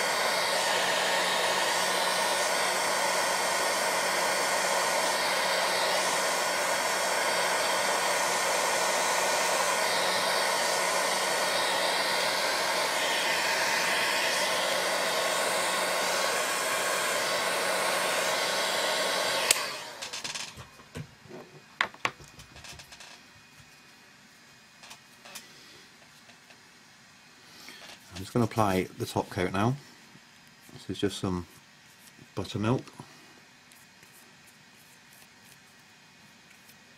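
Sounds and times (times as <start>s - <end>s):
heat gun blowing: 0.0s - 20.6s.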